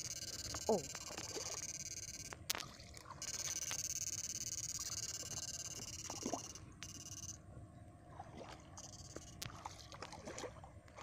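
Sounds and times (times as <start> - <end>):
high-pitched electrical whine: 0.0 - 7.4, 8.8 - 9.5
shallow water sloshing and splashing: 8.0 - 11.0.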